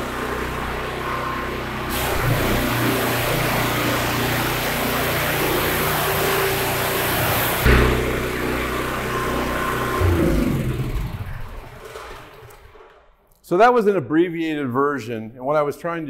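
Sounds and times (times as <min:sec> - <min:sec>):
pressure washer engine running: 0:00.0 - 0:12.5
high-pressure water spray hissing: 0:01.9 - 0:07.7.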